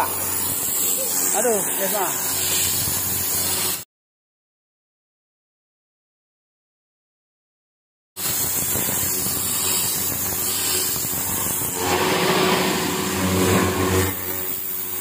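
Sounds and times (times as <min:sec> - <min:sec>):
pressure washer jet hissing: 0:00.0 - 0:03.8, 0:08.2 - 0:15.0
machine hum: 0:10.2 - 0:15.0.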